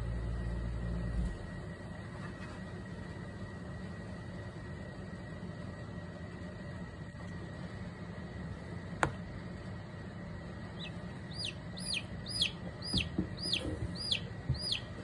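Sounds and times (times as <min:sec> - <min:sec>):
steady low hum: 0:00.0 - 0:15.0
chick peeping in distress: 0:10.8 - 0:15.0.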